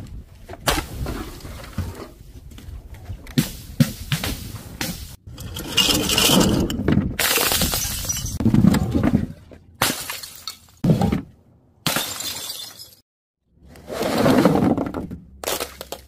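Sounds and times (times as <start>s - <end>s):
glass jars and bottles smashing: 5.4s - 8.4s, 9.8s - 10.8s, 11.9s - 13.0s.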